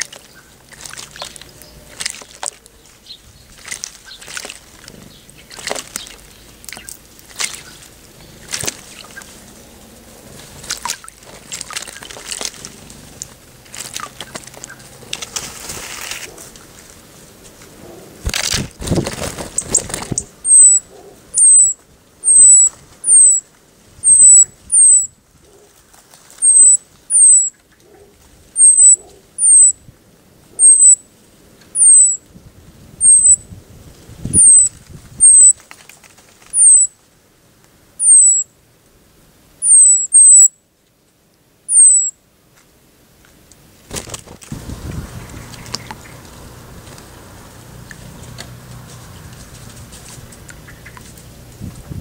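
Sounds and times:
water splashing: 0:00.0 - 0:16.8
bird wing flaps: 0:10.4 - 0:16.6, 0:18.2 - 0:20.4, 0:34.9 - 0:36.6, 0:43.9 - 0:47.1
songbird high call notes: 0:20.5 - 0:23.4, 0:24.0 - 0:25.1, 0:26.4 - 0:27.6, 0:28.6 - 0:29.8, 0:30.6 - 0:31.0, 0:31.8 - 0:32.2, 0:33.0 - 0:33.4, 0:34.4 - 0:35.6, 0:36.6 - 0:36.9, 0:38.0 - 0:38.5, 0:39.6 - 0:40.6, 0:41.7 - 0:42.2.

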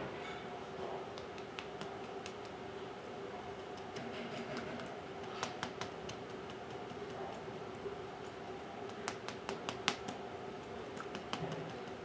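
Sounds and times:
faint steady hum: 0:00.0 - 0:12.0
ink pad tapping on stamp: 0:08.9 - 0:10.2.

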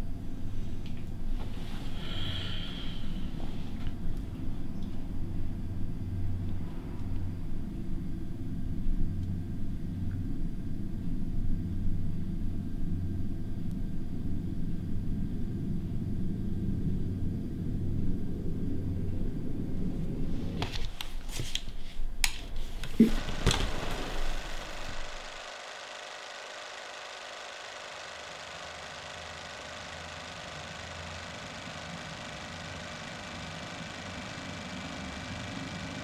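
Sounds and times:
low rumbling drone: 0:00.0 - 0:20.5.

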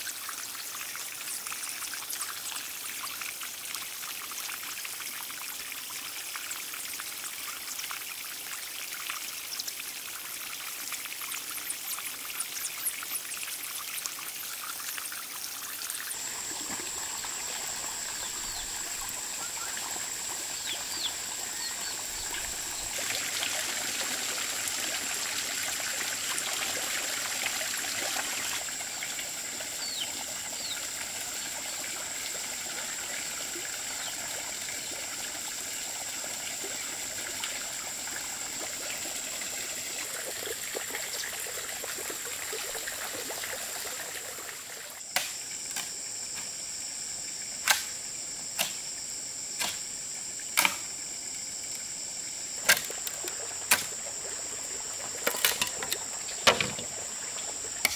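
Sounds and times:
water trickling: 0:00.0 - 0:45.0, 0:52.6 - 0:57.9
sharp wooden knocks on bamboo: 0:45.1 - 0:45.9, 0:47.6 - 0:47.9, 0:48.6 - 0:48.8, 0:49.6 - 0:49.8, 0:50.6 - 0:50.9, 0:56.4 - 0:56.8.

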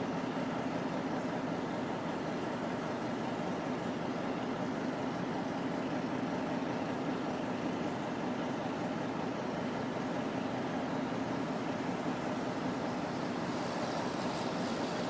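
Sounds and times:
locomotive engines droning: 0:00.0 - 0:15.0.

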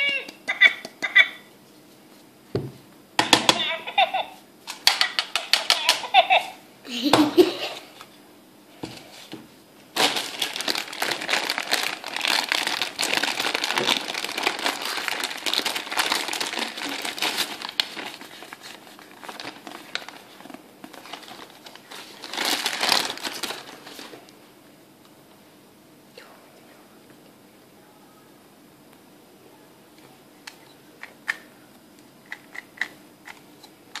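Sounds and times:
plastic bag crinkling: 0:09.9 - 0:24.2.

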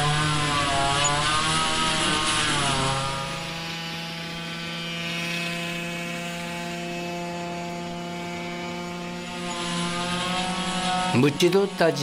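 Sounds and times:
brush cutter engine running: 0:00.0 - 0:12.0.

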